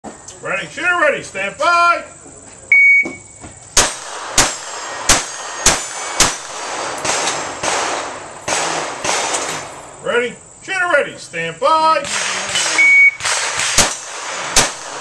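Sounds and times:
shot timer beep: 0:02.7 - 0:03.3, 0:12.6 - 0:13.2
pistol shots: 0:03.8 - 0:09.7, 0:12.0 - 0:15.0.

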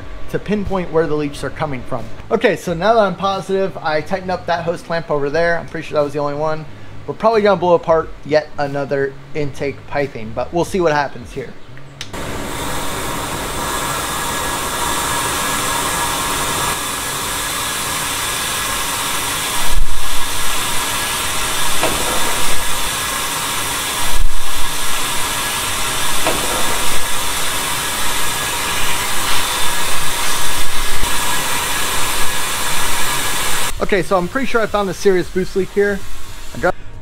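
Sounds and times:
compressed air hissing: 0:12.2 - 0:36.9
loud thumps: 0:19.7 - 0:31.3.

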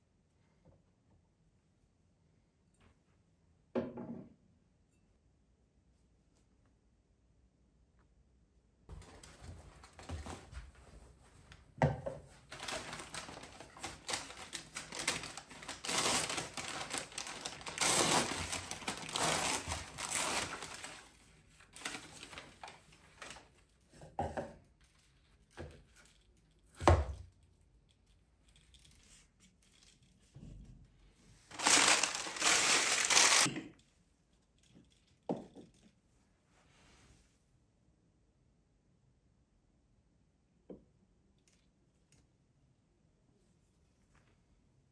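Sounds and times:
paper bag rustling: 0:12.4 - 0:23.4, 0:31.5 - 0:33.5.

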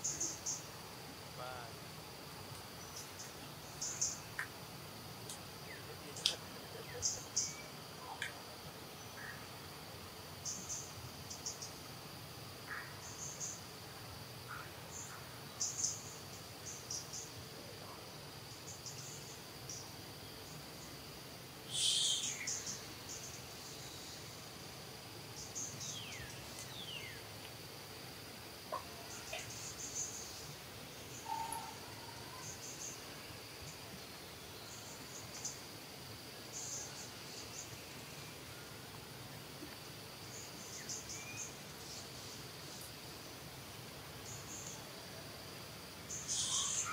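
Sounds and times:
insect chorus drone: 0:00.0 - 0:46.9
birds chirping: 0:05.6 - 0:08.4, 0:46.1 - 0:46.9.

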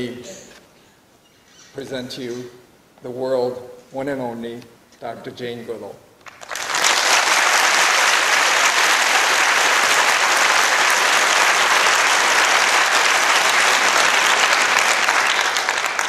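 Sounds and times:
audience applauding: 0:06.2 - 0:16.0.

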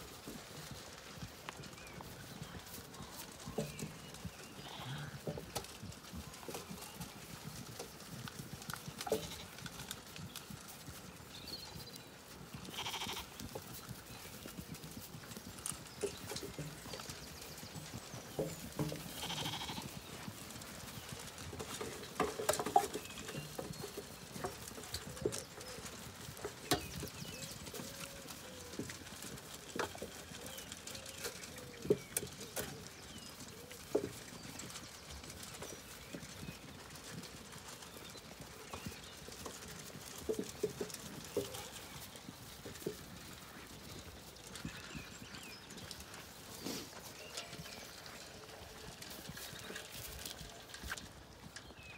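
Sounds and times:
sheep shuffling and munching: 0:00.0 - 0:51.9
sheep bleating: 0:12.6 - 0:13.3, 0:19.2 - 0:19.9.

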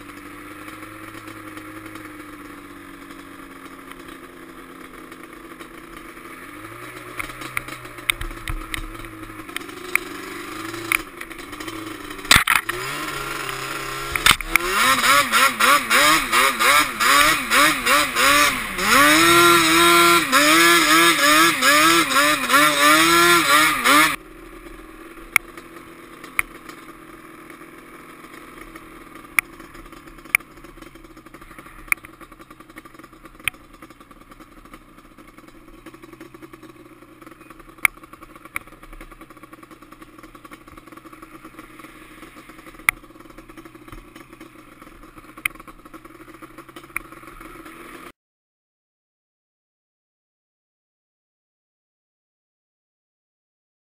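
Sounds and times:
quad engine revving: 0:00.0 - 0:33.6, 0:34.7 - 0:48.1.

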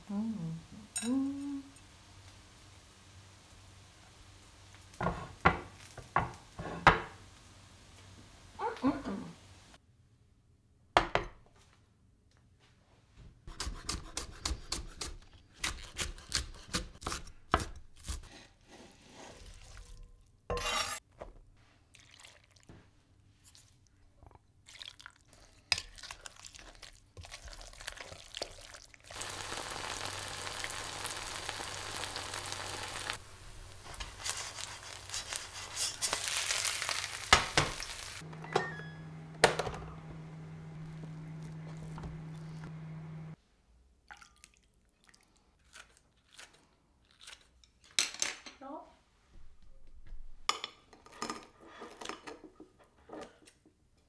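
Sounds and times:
batter sizzling in pan: 0:01.6 - 0:09.8, 0:24.7 - 0:38.2.

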